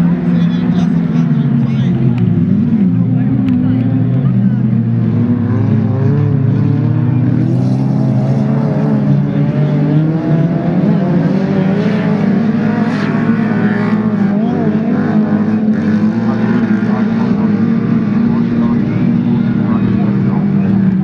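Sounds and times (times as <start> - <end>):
racing car engines revving: 0.0 - 21.0.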